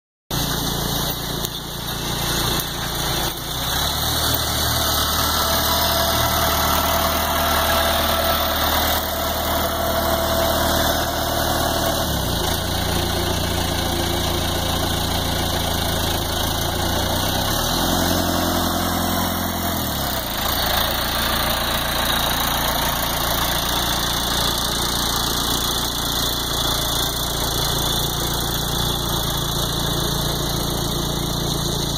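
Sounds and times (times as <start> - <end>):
tractor engine running: 0.3 - 31.9.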